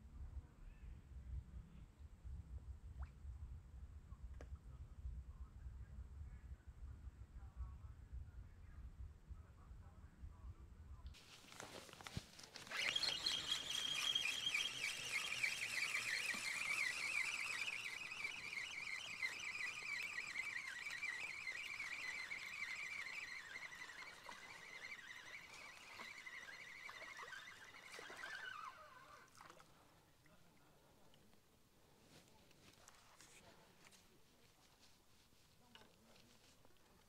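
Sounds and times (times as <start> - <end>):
fishing reel whine: 11.4 - 29.3.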